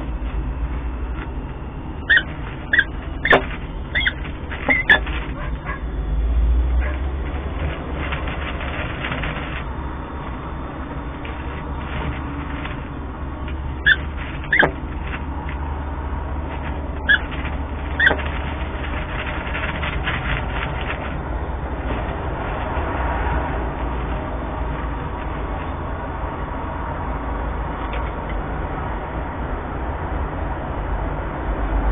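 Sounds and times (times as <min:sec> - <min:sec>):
low hum: 0:00.0 - 0:31.8
short bird calls: 0:02.0 - 0:05.0.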